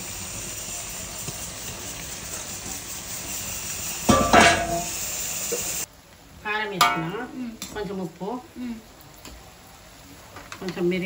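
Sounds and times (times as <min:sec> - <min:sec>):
noodles sizzling in a wok: 0:00.0 - 0:11.0
metal bowl clanging on wok: 0:04.1 - 0:04.9, 0:06.8 - 0:07.8.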